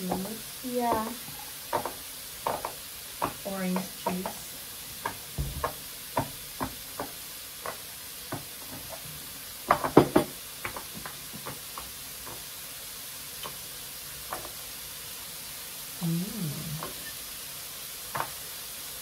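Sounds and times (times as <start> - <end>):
meat sizzling on a grill plate: 0.0 - 19.0
knocks: 5.0 - 8.9, 9.7 - 11.6.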